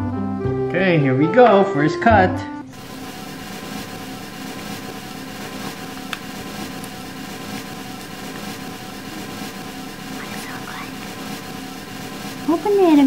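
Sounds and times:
steady machine hum: 2.6s - 13.0s.

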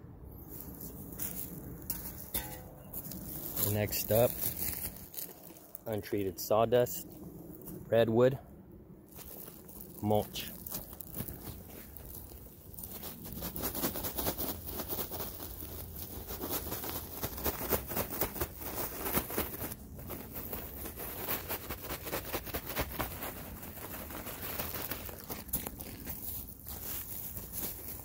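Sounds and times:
sawdust mulch pouring onto soil: 9.1s - 28.0s.

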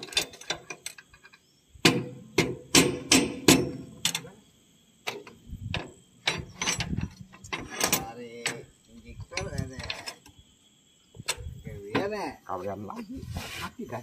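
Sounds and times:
metal tools clanking: 6.2s - 10.3s.

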